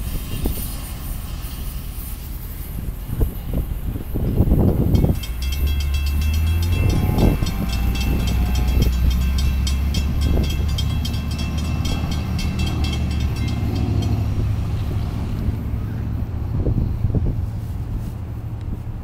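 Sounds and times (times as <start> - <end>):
low engine rumble: 0.0 - 19.0
railroad crossing bell ringing: 4.2 - 16.2.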